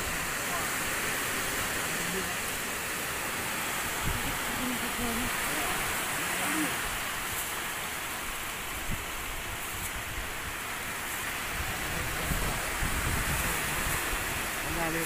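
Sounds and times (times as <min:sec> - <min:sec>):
sea surf rushing: 0:00.0 - 0:15.0
faint voice: 0:04.5 - 0:06.8.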